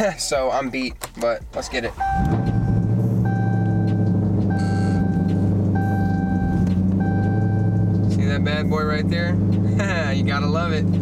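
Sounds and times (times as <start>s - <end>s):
car engine idling: 0.0s - 11.0s
dashboard warning chime: 1.9s - 9.5s.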